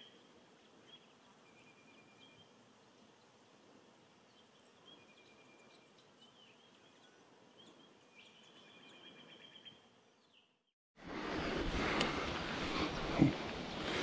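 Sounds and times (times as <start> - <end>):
distant small birds calling: 0.0 - 10.7.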